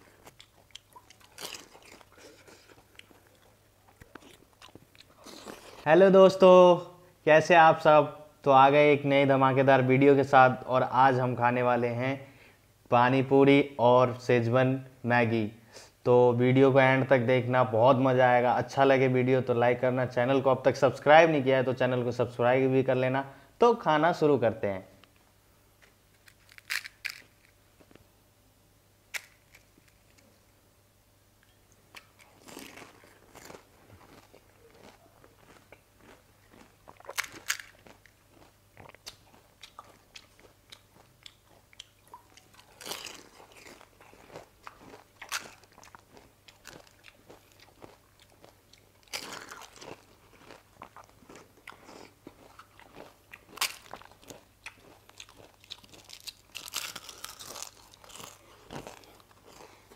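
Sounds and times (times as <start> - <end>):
crisp shells cracking: 26.1 - 27.6, 29.1 - 30.3, 37.0 - 38.2, 52.9 - 59.6.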